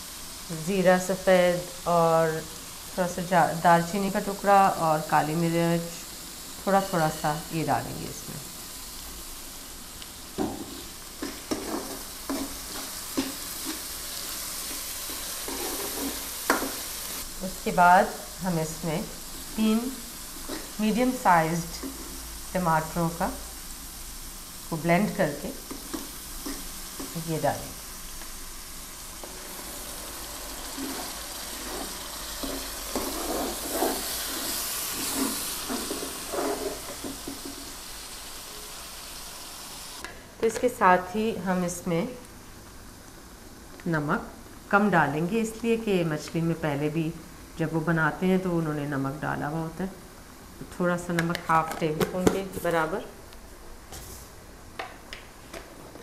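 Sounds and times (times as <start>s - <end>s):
onion frying in oil: 0.0s - 54.7s
spoon scraping a pot: 10.6s - 14.0s, 14.6s - 16.8s, 30.6s - 37.6s.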